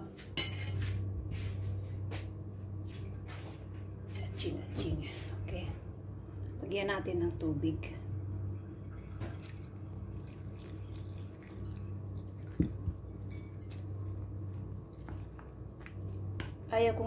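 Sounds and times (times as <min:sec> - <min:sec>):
low hum: 0:00.0 - 0:17.0
hand mixing wet batter: 0:09.0 - 0:17.0.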